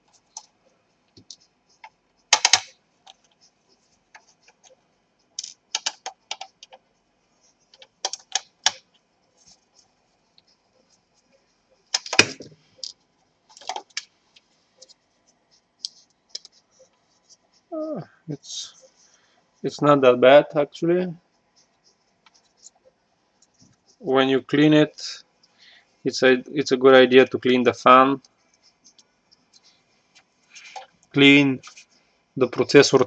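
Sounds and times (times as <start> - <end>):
metal parts clicking and scraping: 5.4 - 6.0.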